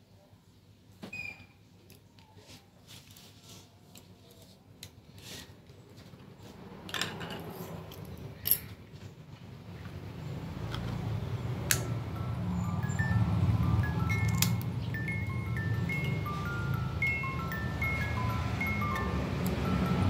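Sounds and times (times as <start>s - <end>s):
music: 12.0s - 20.0s.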